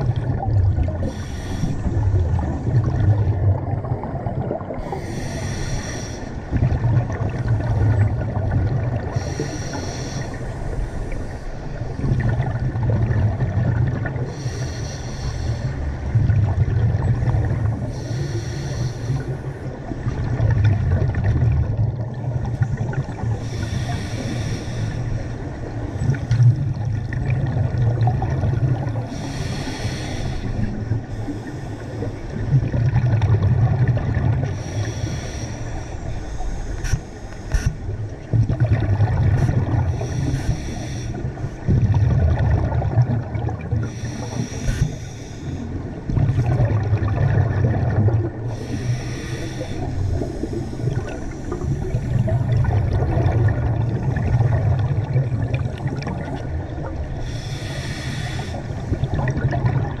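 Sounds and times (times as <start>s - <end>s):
bubbling exhales underwater: 0.0s - 5.4s, 6.5s - 9.5s, 20.0s - 24.1s, 26.0s - 29.3s, 32.3s - 34.7s, 37.6s - 40.3s, 41.6s - 45.0s, 45.9s - 60.0s
hissing regulator inhales: 1.0s - 2.0s, 4.8s - 6.4s, 9.1s - 11.6s, 14.3s - 15.8s, 17.9s - 19.4s, 23.4s - 25.3s, 29.1s - 32.0s, 34.5s - 37.9s, 39.9s - 41.4s, 43.8s - 45.8s, 48.5s - 52.3s, 57.2s - 59.0s.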